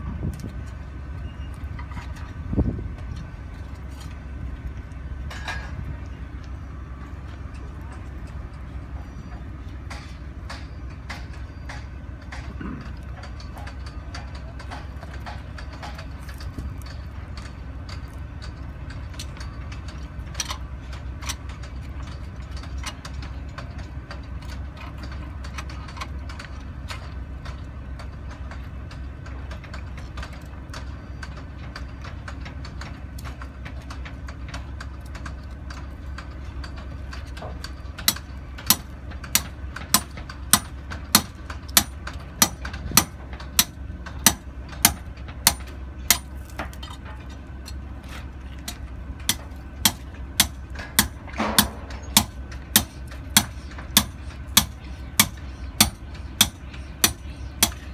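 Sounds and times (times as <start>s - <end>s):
diesel engine idling: 0.0s - 57.9s
sharp knocks: 49.3s - 57.8s.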